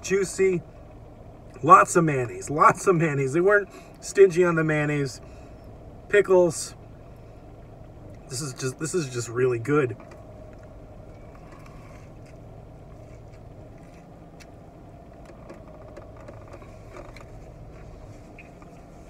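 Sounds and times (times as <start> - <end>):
car cabin hum: 0.0 - 19.0
man chewing food: 10.0 - 19.0.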